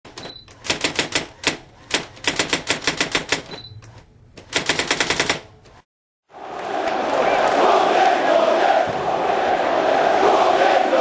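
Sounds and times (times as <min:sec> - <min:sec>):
typewriter key clacks: 0:00.6 - 0:03.5.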